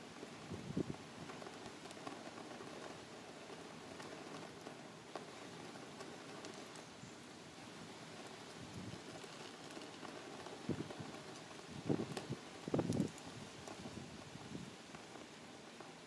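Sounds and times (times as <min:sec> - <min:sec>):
faint outdoor background noise: 0:00.0 - 0:16.0
soft clicks and crackles: 0:00.0 - 0:16.0.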